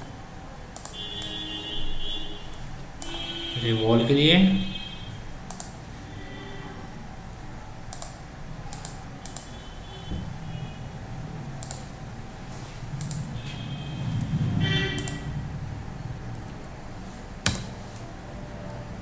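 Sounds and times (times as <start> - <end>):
computer mouse clicking: 0.7 - 1.4, 5.5 - 5.8, 7.9 - 9.6, 11.6 - 12.0, 12.9 - 13.4, 15.0 - 15.3.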